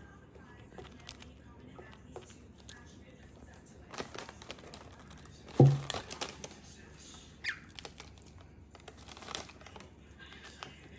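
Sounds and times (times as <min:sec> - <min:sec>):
plastic wrapper crinkling: 0:02.6 - 0:10.9.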